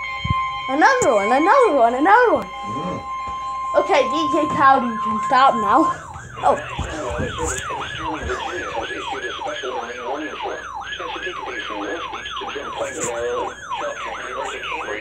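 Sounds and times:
weather radio siren alarm whooping: 0.0 - 15.0.

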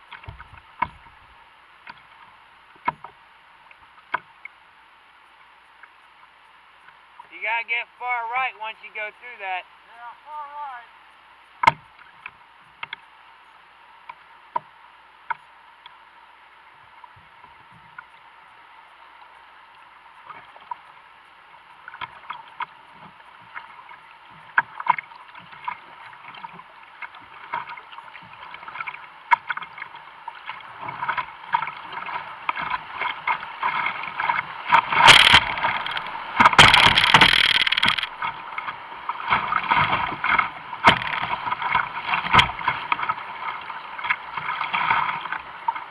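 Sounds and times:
paddle strokes splashing: 16.5 - 45.9
waves breaking over boat: 20.2 - 45.9
whitewater rushing: 33.7 - 38.2.

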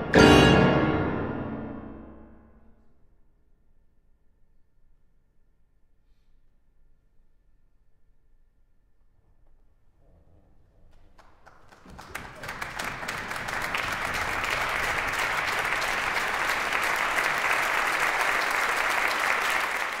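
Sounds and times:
audience applause: 11.2 - 20.0.

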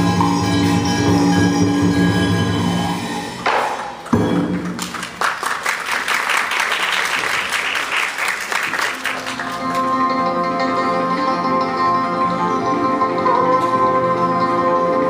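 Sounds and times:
traditional music with held notes: 0.0 - 4.8, 9.0 - 15.0
audience applauding: 4.6 - 10.0.

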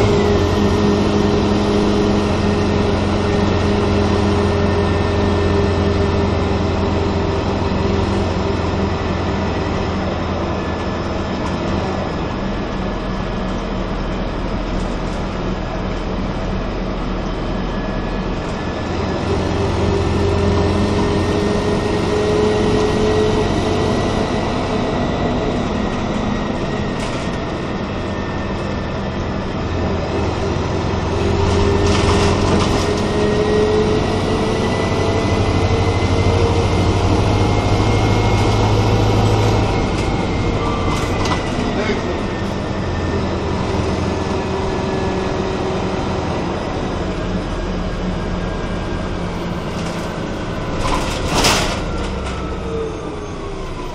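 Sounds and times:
bus engine drone: 0.0 - 53.9.

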